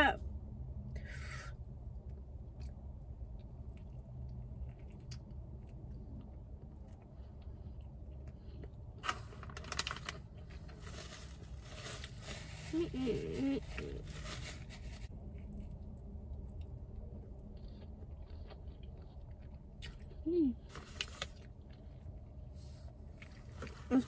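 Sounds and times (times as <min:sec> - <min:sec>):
low steady hum: 0:00.0 - 0:24.0
crunching and chewing: 0:02.1 - 0:12.2, 0:15.1 - 0:22.4
crackly rustling: 0:08.3 - 0:16.0.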